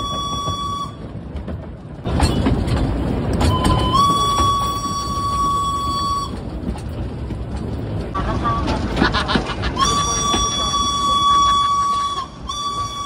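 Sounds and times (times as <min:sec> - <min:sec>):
steam locomotive whistle: 0:00.0 - 0:01.0, 0:03.5 - 0:06.4, 0:09.8 - 0:13.0
locomotive running noise: 0:00.0 - 0:13.0.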